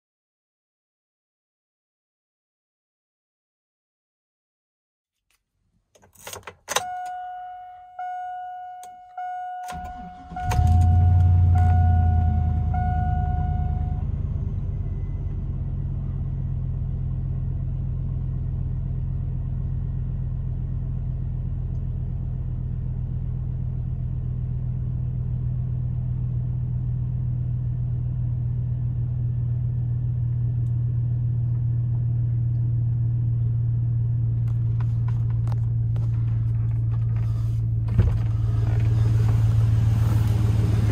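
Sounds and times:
dashboard warning chime: 0:06.7 - 0:14.1
engine cranking and starting: 0:09.7 - 0:11.8.

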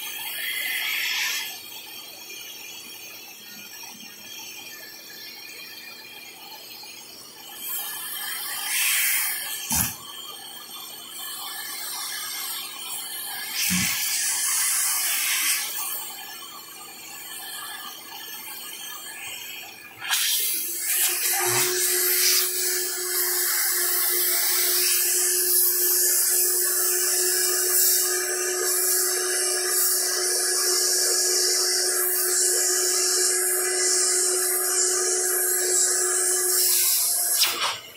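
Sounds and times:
vacuum cleaner running: 0:07.9 - 0:10.1, 0:13.4 - 0:16.5, 0:18.7 - 0:37.9.

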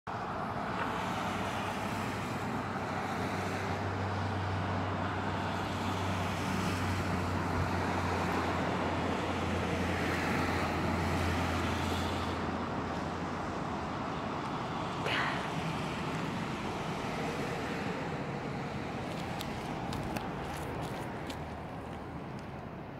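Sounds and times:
low engine hum: 0:00.1 - 0:22.9
road traffic: 0:00.1 - 0:22.9.

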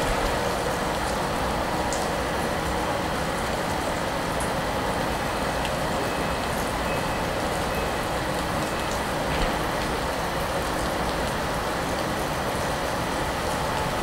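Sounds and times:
train ventilation fans humming: 0:00.0 - 0:14.0.

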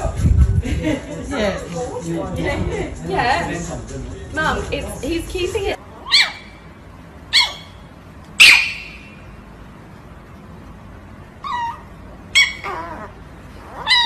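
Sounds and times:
small dog yipping: 0:06.0 - 0:06.7, 0:07.3 - 0:09.2, 0:11.4 - 0:14.0.

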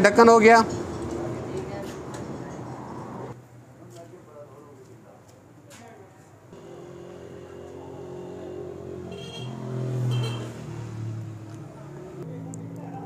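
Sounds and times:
vehicle engine passing by: 0:06.6 - 0:13.0.

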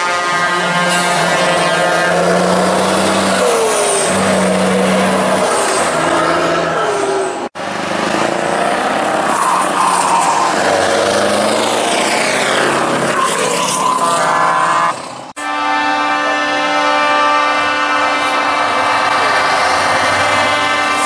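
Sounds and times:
truck air horn blasts: 0:00.0 - 0:06.8, 0:13.5 - 0:21.0
diesel truck engines: 0:00.0 - 0:21.0.

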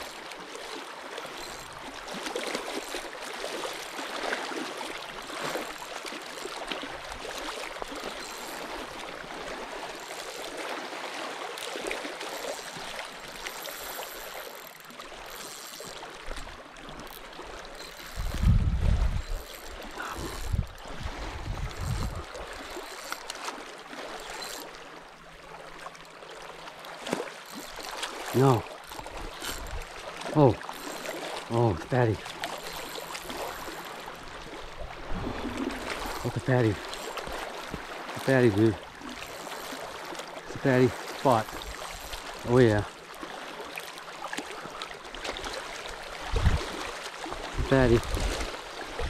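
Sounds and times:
water lapping and splashing: 0:00.0 - 0:49.0.

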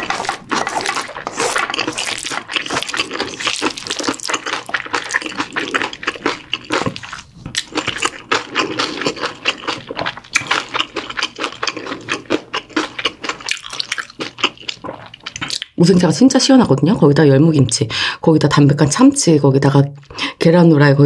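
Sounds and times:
spoon stirring in metal bowl: 0:00.0 - 0:07.0
chewing: 0:00.0 - 0:15.7.

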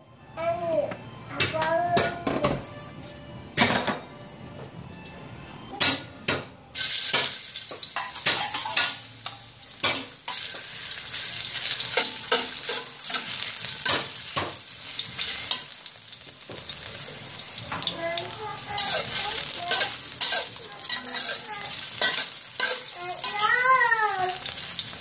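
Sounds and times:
utensils knocking on a wok: 0:05.8 - 0:10.9, 0:11.5 - 0:24.9
mushrooms sizzling in hot oil: 0:06.8 - 0:25.0
metal spatula scraping a wok: 0:06.9 - 0:17.9, 0:18.7 - 0:23.6.

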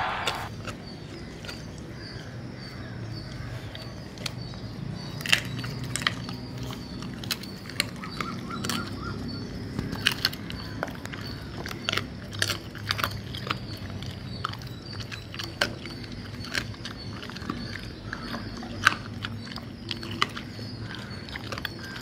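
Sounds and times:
dog crunching on bone: 0:05.2 - 0:22.0.

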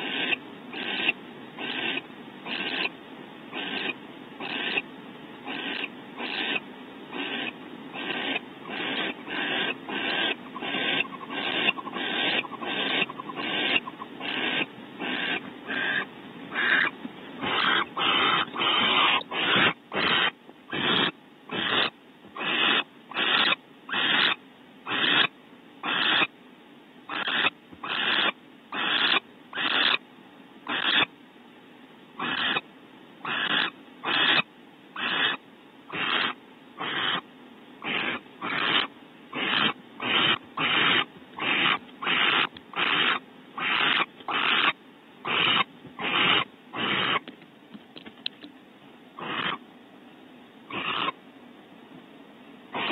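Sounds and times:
barn owl rasping hisses: 0:05.4 - 0:26.3, 0:35.0 - 0:37.2, 0:37.8 - 0:47.2, 0:49.2 - 0:49.6, 0:50.7 - 0:51.2.

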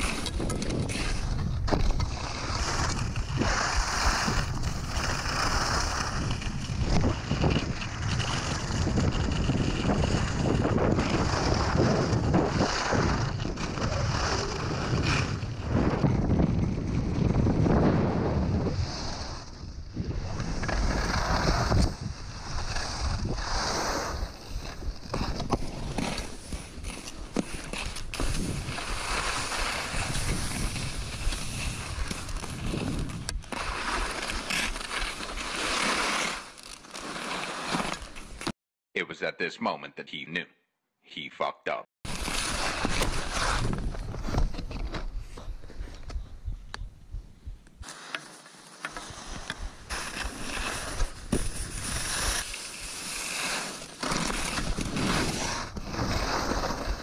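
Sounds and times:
wind buffeting microphone: 0:00.0 - 0:25.4, 0:29.8 - 0:33.4, 0:42.8 - 0:47.7
skis scraping on icy snow: 0:00.0 - 0:38.5, 0:42.1 - 0:45.9, 0:47.8 - 0:57.0.

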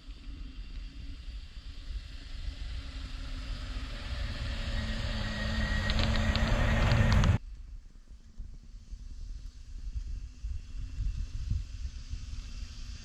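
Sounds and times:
wind on microphone: 0:00.0 - 0:07.4, 0:08.3 - 0:13.0
van engine driving through snow: 0:02.5 - 0:07.4.

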